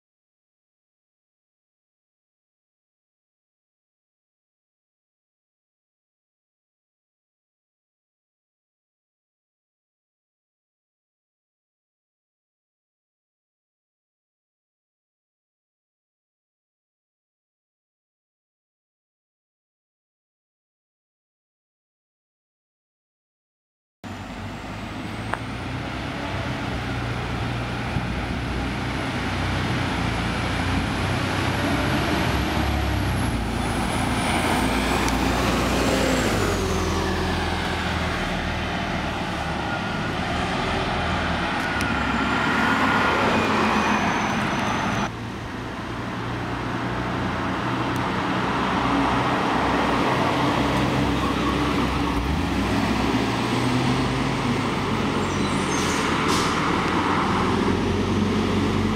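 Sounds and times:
bus diesel engine drone: 24.0 - 58.9
road traffic: 24.0 - 58.9.

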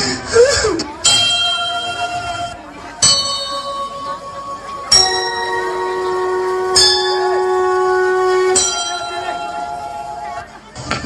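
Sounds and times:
bell-like chime notes: 1.1 - 10.4.

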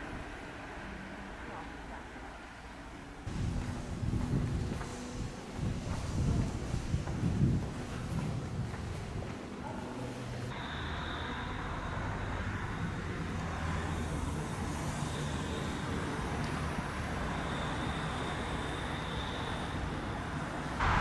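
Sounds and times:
street traffic: 0.0 - 21.0
trolleybus electric hum: 0.0 - 21.0
faint high whine: 9.8 - 16.2, 17.0 - 21.0.

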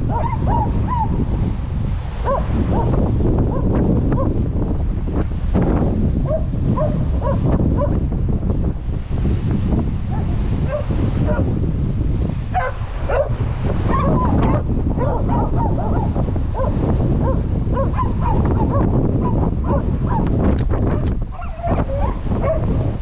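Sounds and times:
wind rumble on microphone: 0.0 - 23.0
dog whining and yipping: 13.9 - 16.1, 21.3 - 22.6.

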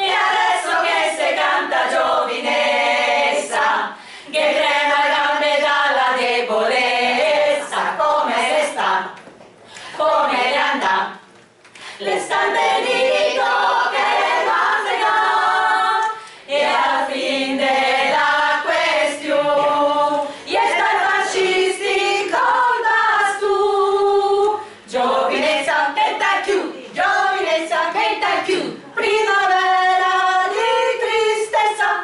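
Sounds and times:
women's choir singing a cappella: 0.0 - 9.2, 9.8 - 11.3, 12.0 - 32.0.

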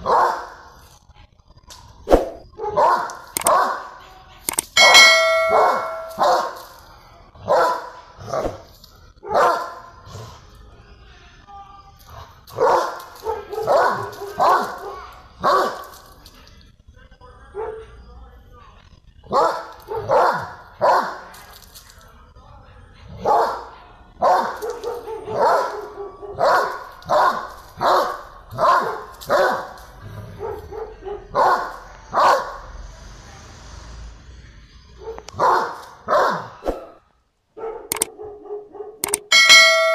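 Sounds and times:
dog barking: 0.0 - 0.6, 2.5 - 4.1, 4.8 - 6.6, 7.4 - 10.0, 12.5 - 16.0, 17.5 - 18.0, 19.3 - 21.3, 23.1 - 32.6, 35.0 - 37.0, 37.6 - 39.9
bright ringing tone: 4.7 - 6.3, 39.0 - 39.9.

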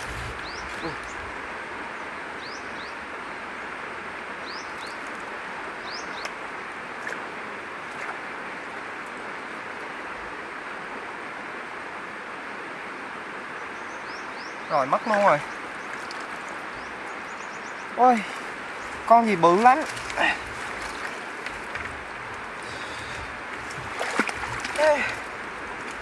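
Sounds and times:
birds chirping: 0.0 - 9.6, 13.4 - 26.0
steady outdoor hiss: 0.0 - 26.0.

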